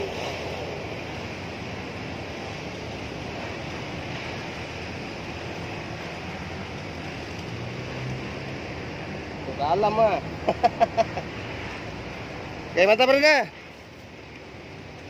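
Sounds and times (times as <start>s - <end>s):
river water rushing: 0.0s - 10.5s.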